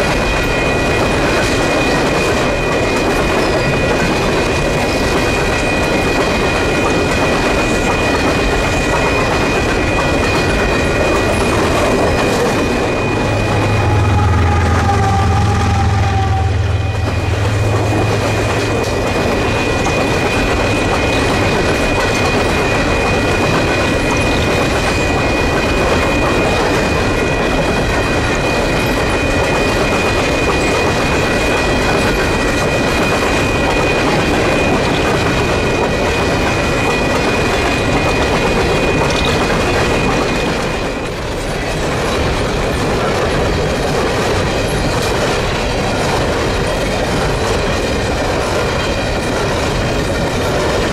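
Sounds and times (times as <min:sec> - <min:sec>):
steel wheels rolling on rail: 0:00.0 - 0:50.9
high-pitched wheel squeal: 0:11.2 - 0:18.6.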